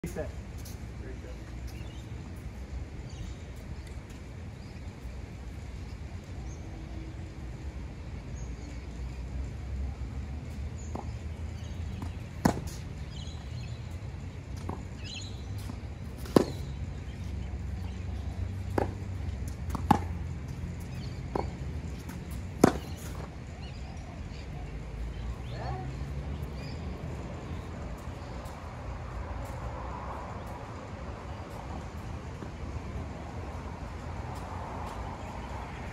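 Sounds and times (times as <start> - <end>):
tennis balls struck by racquets: 10.8 - 13.8, 14.5 - 24.0.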